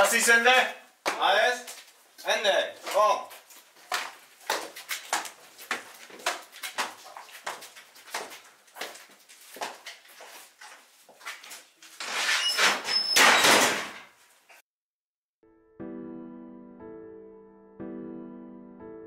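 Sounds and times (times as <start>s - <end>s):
boots on stone stairs: 3.8s - 11.4s
heavy door scraping and squeaking: 12.0s - 14.0s.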